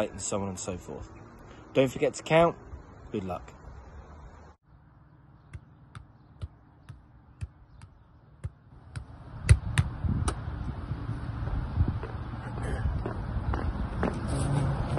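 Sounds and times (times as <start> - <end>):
wind rumbling on microphone: 9.4 - 14.9.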